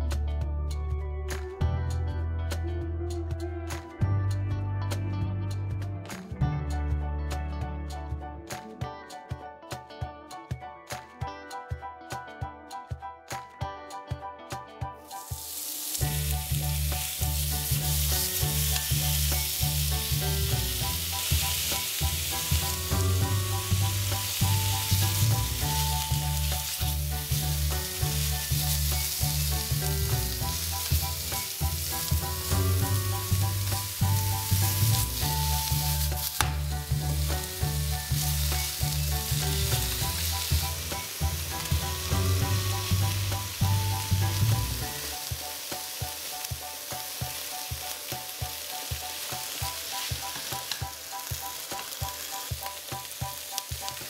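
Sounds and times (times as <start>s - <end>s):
meat sizzling in a frying pan: 15.1s - 54.0s.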